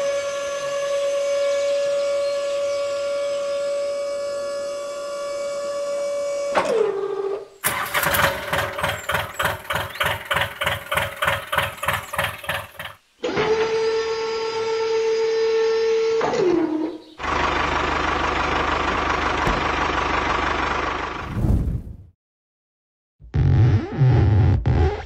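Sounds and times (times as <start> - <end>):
tractor engine chugging: 7.6 - 13.0, 17.2 - 21.2.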